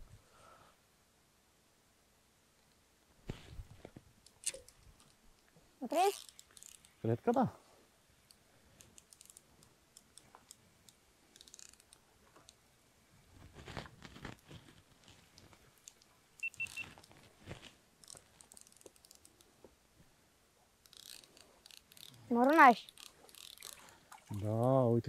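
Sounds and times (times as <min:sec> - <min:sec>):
fishing reel clicks and rustles: 0:04.2 - 0:07.1, 0:08.2 - 0:12.7, 0:13.5 - 0:19.5, 0:20.8 - 0:24.8
short high beeps: 0:16.4 - 0:16.9.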